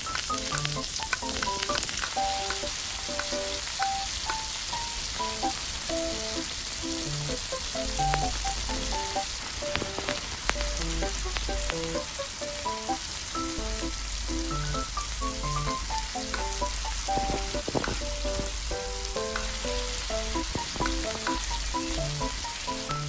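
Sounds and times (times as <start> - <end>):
food sizzling in wok: 0.0 - 23.0
background tune with bass line: 6.1 - 9.2, 10.6 - 23.0.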